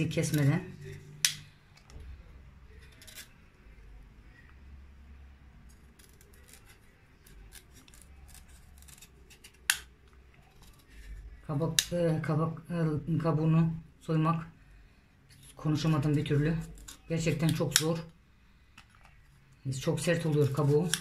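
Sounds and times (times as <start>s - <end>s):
knife scraping squash rind: 5.7s - 9.8s, 15.3s - 17.8s, 19.9s - 21.0s.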